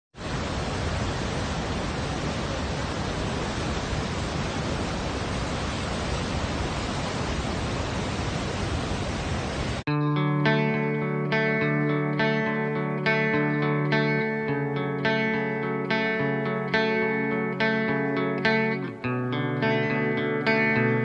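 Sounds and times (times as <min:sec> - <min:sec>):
waterfall rushing: 0:00.2 - 0:09.8, 0:10.8 - 0:21.0
guitar music: 0:09.9 - 0:21.0.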